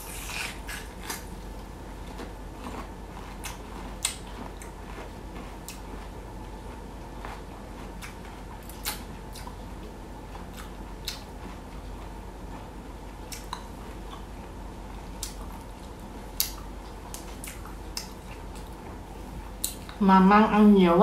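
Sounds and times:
person chewing: 0:00.0 - 0:20.0
steady low hum: 0:00.0 - 0:21.0
mouth clicks and smacks: 0:08.0 - 0:09.6, 0:10.5 - 0:11.3, 0:13.3 - 0:14.3, 0:19.6 - 0:20.0.

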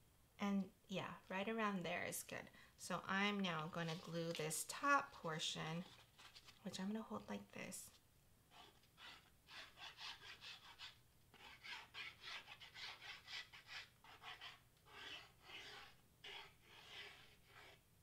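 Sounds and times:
glue bottle tip scratching cardstock: 0:08.6 - 0:17.8.

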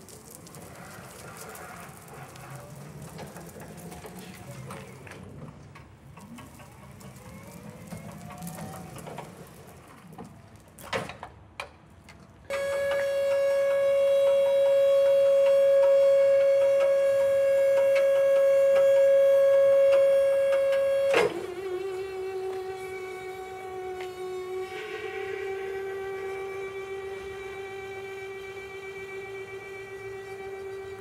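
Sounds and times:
hydraulic pump motor whine: 0:12.5 - 0:31.0.

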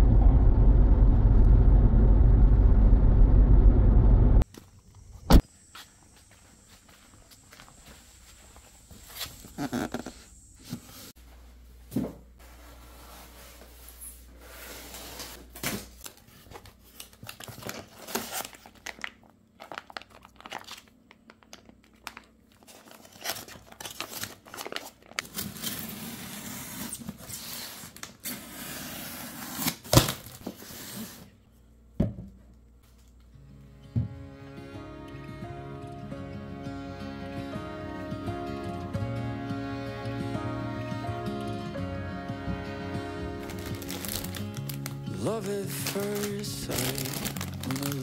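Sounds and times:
rustling and crinkling: 0:05.8 - 0:28.2, 0:43.4 - 0:48.0.

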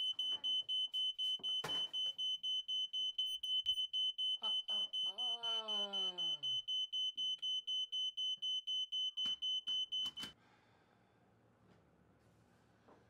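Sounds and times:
smoke alarm beeping: 0:00.0 - 0:10.4.

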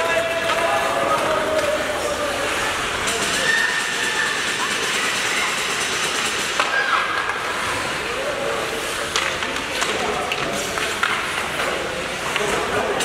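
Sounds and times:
hockey sticks clicking on puck: 0:00.0 - 0:13.0
spectators' voices: 0:00.0 - 0:13.0
skate blades scraping ice: 0:06.1 - 0:13.0.

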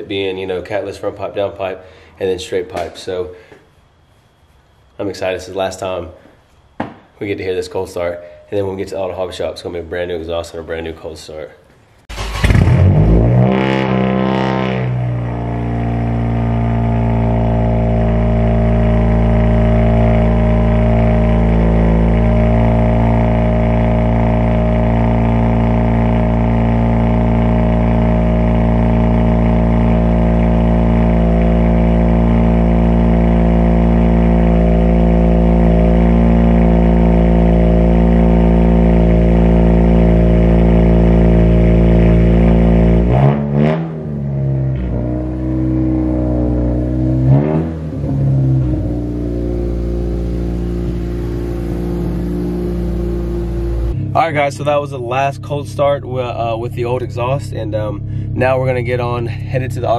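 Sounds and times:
car engine cold start idling: 0:12.1 - 0:13.2, 0:47.9 - 0:55.9, 0:56.5 - 0:59.9.

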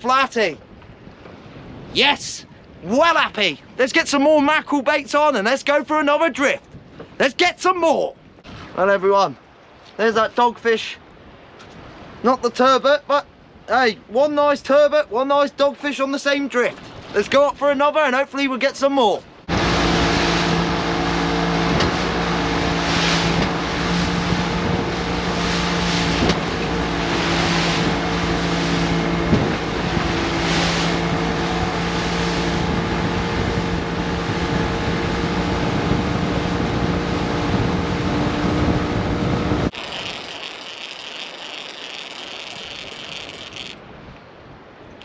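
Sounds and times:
hull hitting waves: 0:00.0 - 0:14.3, 0:15.7 - 0:18.1, 0:18.9 - 0:45.0
wind and water rushing: 0:00.0 - 0:45.0
boat engine running: 0:19.4 - 0:43.8.

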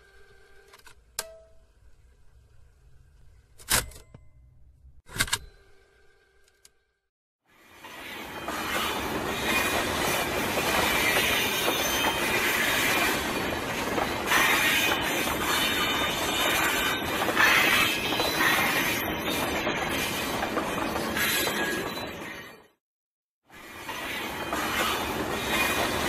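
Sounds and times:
train running on rails: 0:07.5 - 0:22.8, 0:23.4 - 0:26.0.

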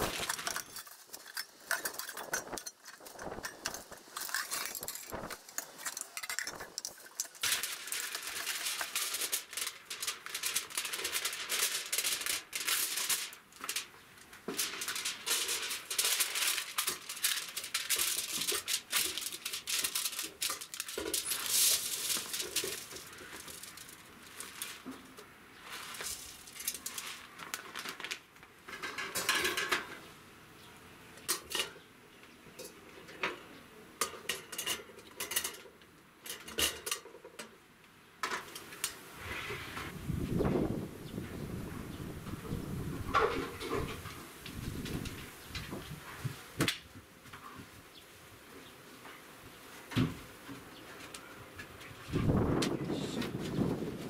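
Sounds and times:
aluminium foil crinkling: 0:00.0 - 0:29.4.

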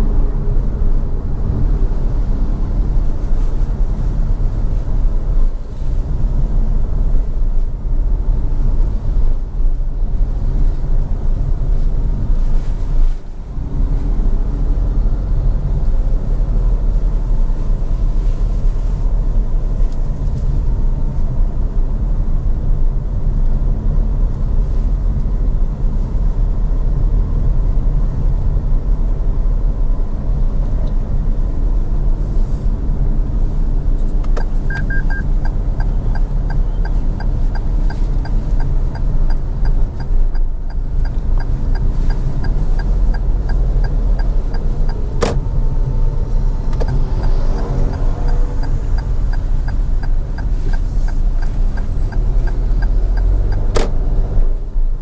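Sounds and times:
car driving rumble: 0:00.0 - 0:55.0
turn signal ticking: 0:33.0 - 0:55.0.

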